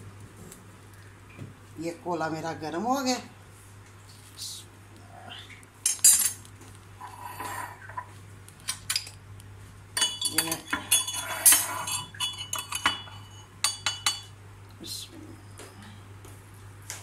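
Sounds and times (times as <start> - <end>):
dishes and utensils clinking: 10.0 - 14.3.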